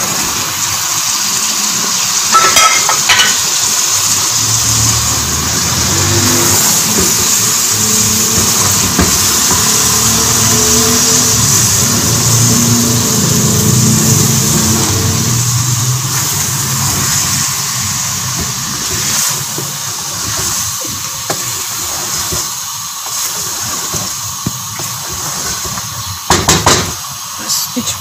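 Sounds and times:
food sizzling in a pot: 0:00.0 - 0:28.0
wooden spatula scraping pot: 0:16.1 - 0:26.2
loud knocks: 0:26.3 - 0:27.0.

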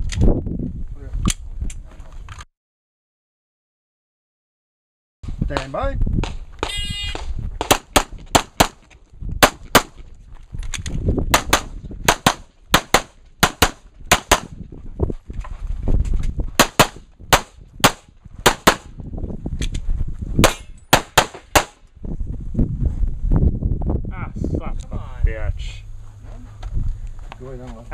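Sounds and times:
handgun shots: 0:05.6 - 0:08.8, 0:09.4 - 0:10.0, 0:11.3 - 0:14.5, 0:16.6 - 0:18.9, 0:20.4 - 0:21.8.

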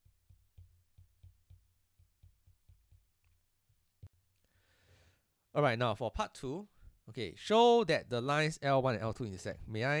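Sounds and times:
stylus tapping on tablet screen: 0:00.0 - 0:04.1.

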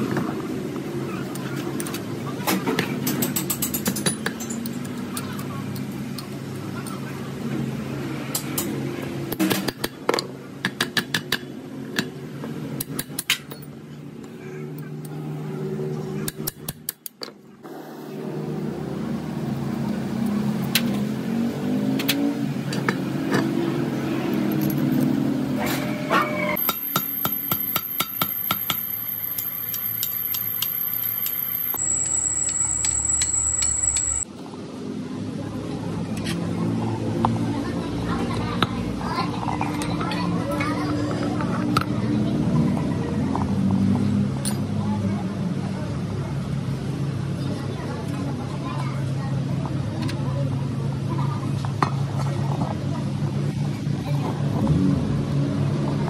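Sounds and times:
steady high thin whine: 0:25.6 - 0:34.3
wrench clicking against bolts: 0:26.6 - 0:31.8.

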